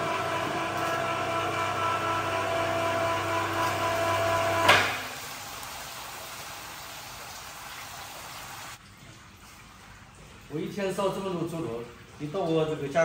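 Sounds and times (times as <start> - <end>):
electric hoist motor humming: 0.0 - 5.1
sharp clunk: 4.6 - 5.0.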